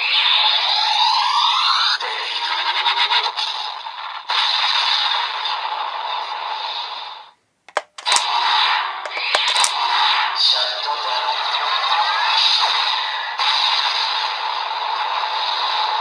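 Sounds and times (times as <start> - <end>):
sharp clicks: 7.7 - 8.3, 9.1 - 9.8.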